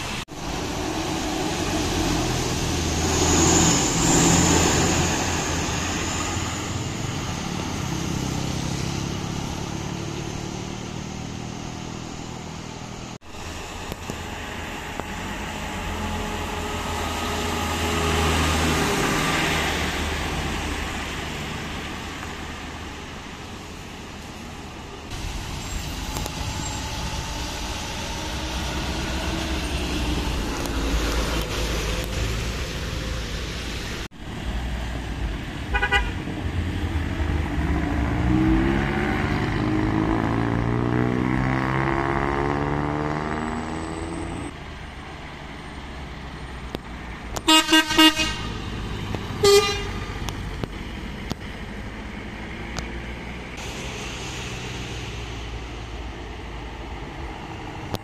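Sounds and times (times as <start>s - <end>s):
vehicles driving past: 0.0s - 58.0s
vehicle horn: 35.7s - 36.2s, 47.4s - 48.7s, 49.4s - 50.0s.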